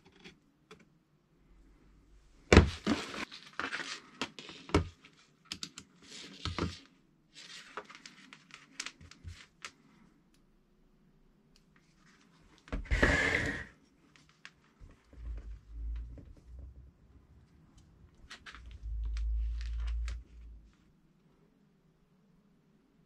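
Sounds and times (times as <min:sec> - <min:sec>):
rustling and scraping: 0:02.5 - 0:05.2, 0:11.8 - 0:20.9.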